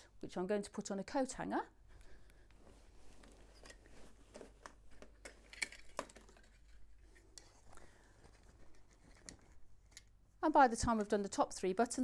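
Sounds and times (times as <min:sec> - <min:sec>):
cloth rustling: 0:02.2 - 0:09.8.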